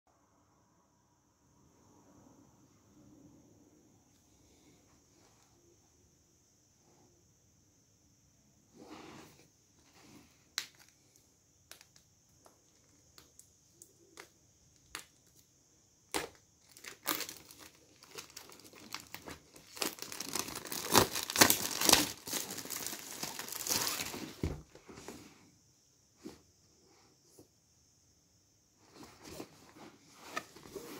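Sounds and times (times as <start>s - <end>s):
plastic shrink wrap crinkling and tearing: 16.1s - 24.4s.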